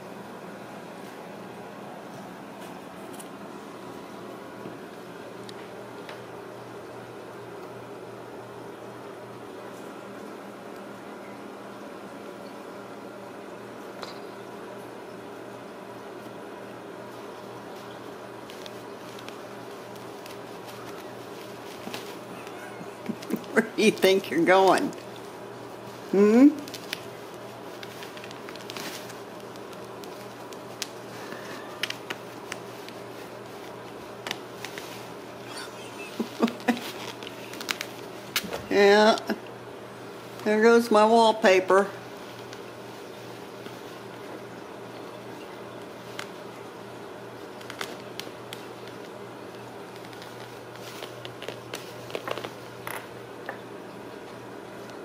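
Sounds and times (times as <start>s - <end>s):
low room hum: 0.0s - 55.0s
kittens' claws scratching fabric: 17.1s - 24.2s, 24.9s - 38.5s, 47.4s - 52.7s.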